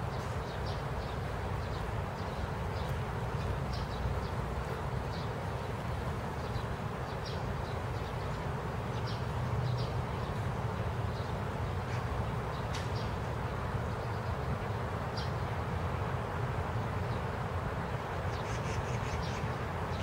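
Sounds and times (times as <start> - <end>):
small birds chirping: 18.3 - 20.0.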